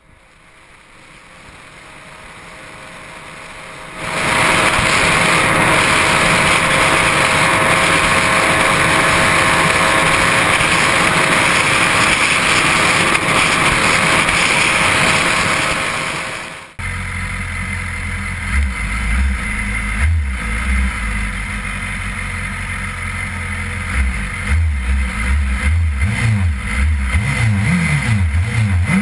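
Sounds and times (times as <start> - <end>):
motorcycle engine at high revs: 2.0 - 29.0
heavy wind rush: 3.9 - 16.8.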